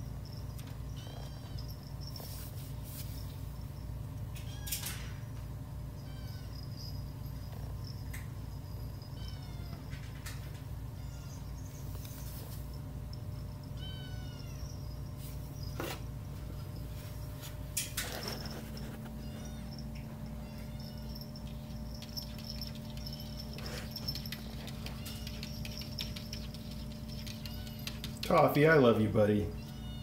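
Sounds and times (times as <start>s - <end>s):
steady low hum: 0.0s - 30.0s
kittens mewing: 13.3s - 15.2s, 18.3s - 28.3s.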